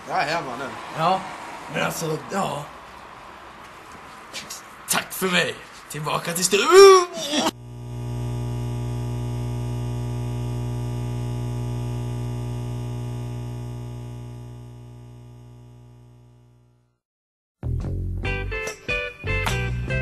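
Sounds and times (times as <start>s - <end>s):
low electronic buzz: 7.5s - 17.0s.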